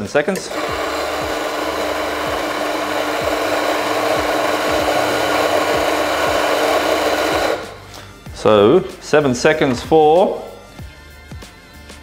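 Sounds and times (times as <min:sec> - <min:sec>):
coffee grinder whirring: 0:00.4 - 0:07.8.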